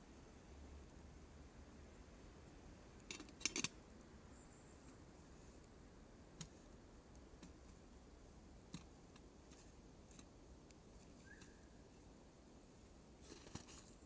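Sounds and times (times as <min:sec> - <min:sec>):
campfire crackling and popping: 0:02.9 - 0:04.2, 0:04.9 - 0:12.0.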